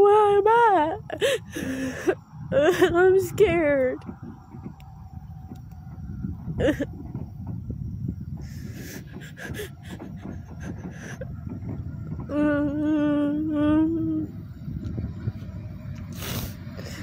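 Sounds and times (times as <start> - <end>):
low rumble: 0.0 - 17.0
woman sobbing: 0.8 - 3.2, 6.6 - 7.0, 9.2 - 11.4.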